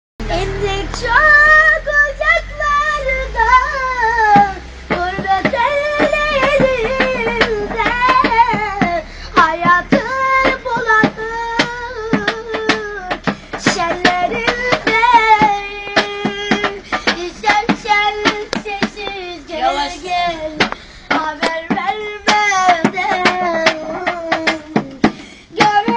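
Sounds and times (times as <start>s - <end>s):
boy singing: 0.2s - 25.9s
percussive taps: 4.4s - 19.3s, 20.2s - 25.9s.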